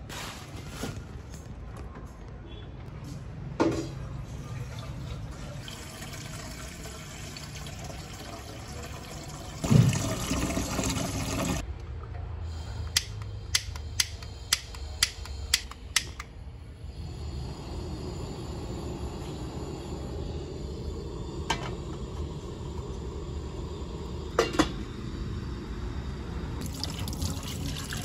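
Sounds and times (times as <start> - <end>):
gas burner igniter clicks: 12.9 - 16.3.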